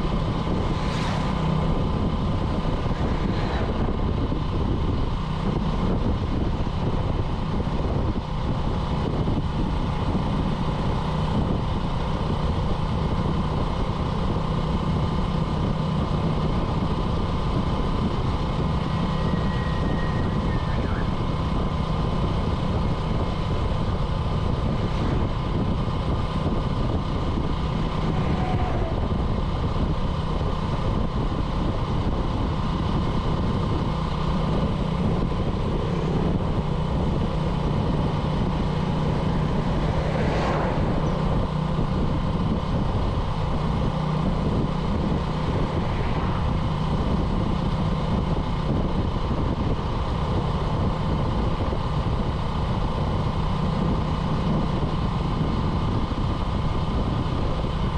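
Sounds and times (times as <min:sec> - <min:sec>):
motorcycle engine running: 0:00.0 - 0:57.9
road and wind noise: 0:00.0 - 0:57.9.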